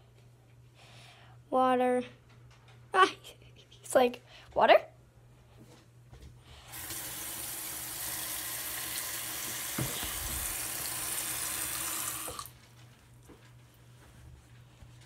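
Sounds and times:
tap water splashing in sink: 6.8s - 12.5s.

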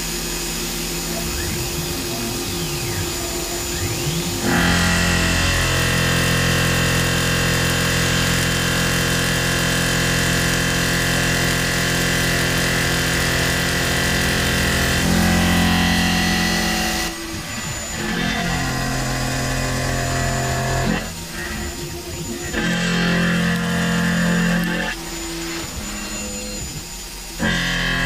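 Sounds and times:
milling machine drone and whine: 0.0s - 28.0s.

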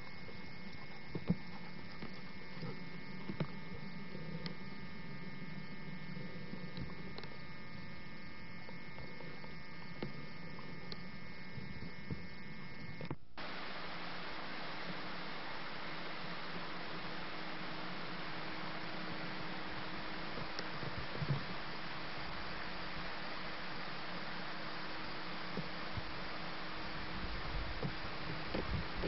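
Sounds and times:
faint clicks: 0.0s - 7.8s, 20.4s - 21.5s
electrical hum and whine: 0.0s - 29.0s
tape hiss: 0.0s - 29.0s.

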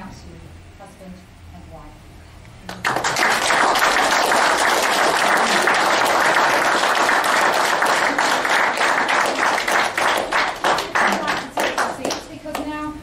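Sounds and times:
crowd applauding: 2.7s - 12.4s.

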